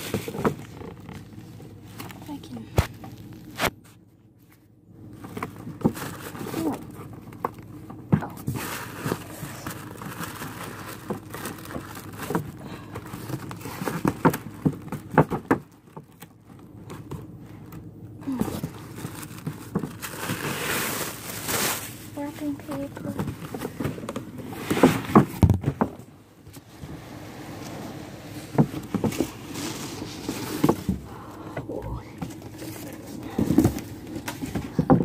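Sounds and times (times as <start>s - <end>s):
packaging rustling: 8.4s - 25.6s, 32.2s - 35.0s.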